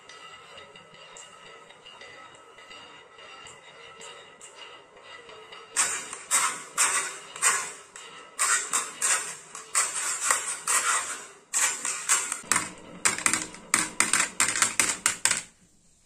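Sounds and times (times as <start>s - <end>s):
marbles clicking and clacking: 5.8s - 15.6s.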